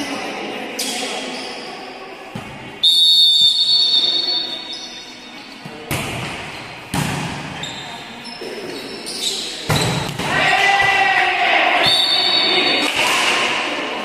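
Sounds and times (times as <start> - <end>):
volleyball hits echoing: 5.6 - 7.6, 9.6 - 13.8.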